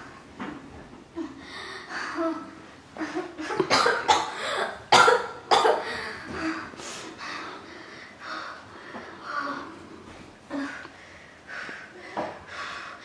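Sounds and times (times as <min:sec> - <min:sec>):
woman coughing hard: 0:03.5 - 0:06.0.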